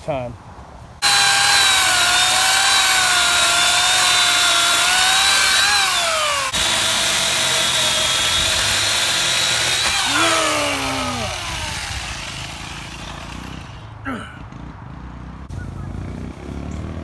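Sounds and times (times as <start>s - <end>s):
electric chainsaw cutting wood: 1.0s - 13.9s.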